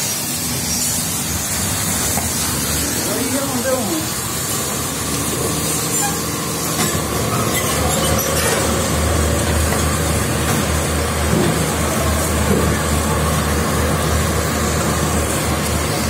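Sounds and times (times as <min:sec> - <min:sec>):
even hiss: 0:00.0 - 0:09.0.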